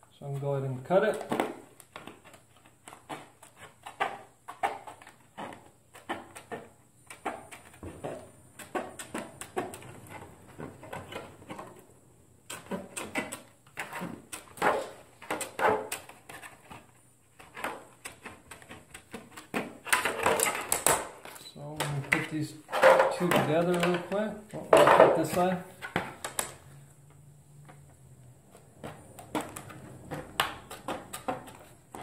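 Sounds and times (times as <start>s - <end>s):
snips cutting plastic: 1.0s - 10.2s.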